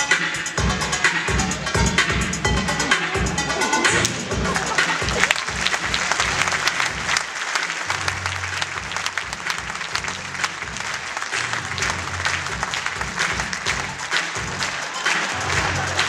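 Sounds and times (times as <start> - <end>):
show music with bass line: 0.0 - 7.2, 7.8 - 16.0
audience applauding: 3.9 - 16.0.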